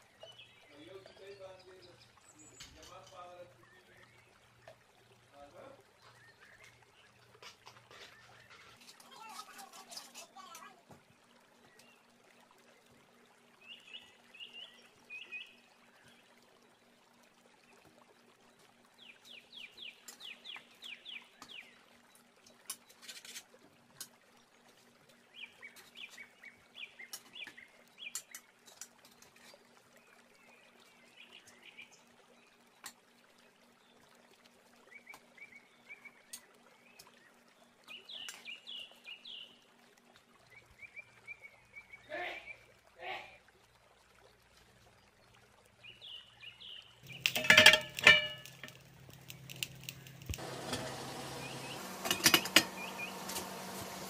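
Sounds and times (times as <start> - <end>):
faint birds chirping: 0.0 - 23.0, 24.4 - 50.4, 51.0 - 54.0
metal utensils clicking on steel pan: 47.0 - 50.4, 52.0 - 53.4.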